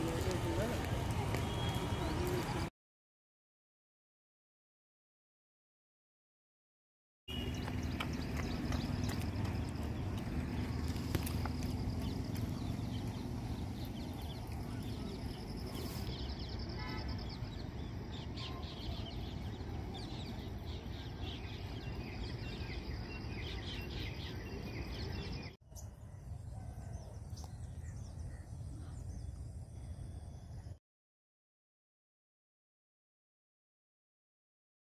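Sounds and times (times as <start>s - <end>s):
birds chirping: 0.0s - 2.7s, 7.3s - 30.8s.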